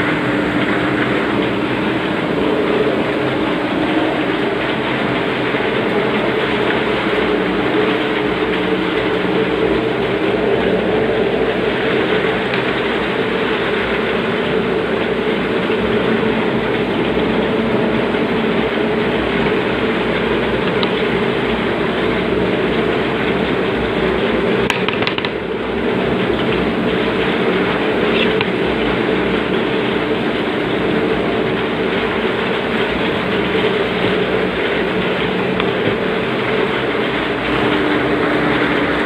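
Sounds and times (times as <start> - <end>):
cnc router cutting: 0.0 - 39.0.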